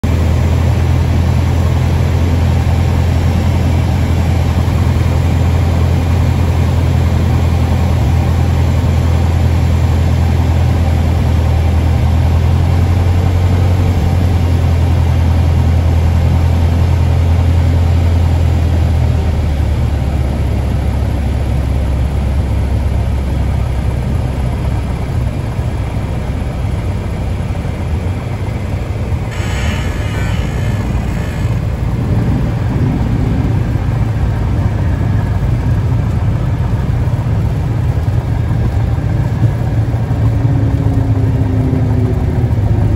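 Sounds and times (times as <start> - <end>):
propeller engine droning: 0.0 - 42.9
airflow noise: 29.0 - 36.0.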